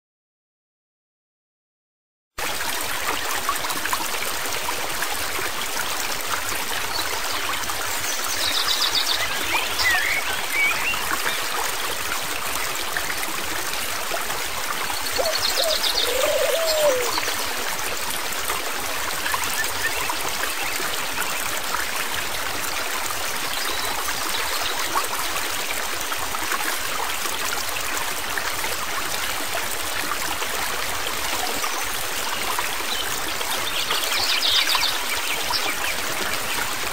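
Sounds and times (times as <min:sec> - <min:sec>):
stream water rushing: 0:02.4 - 0:36.9.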